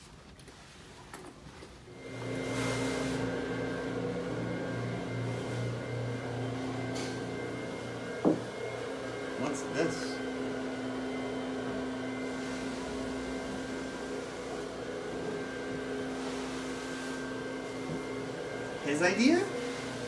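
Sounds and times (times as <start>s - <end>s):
droning hum of held tones: 1.9s - 20.0s.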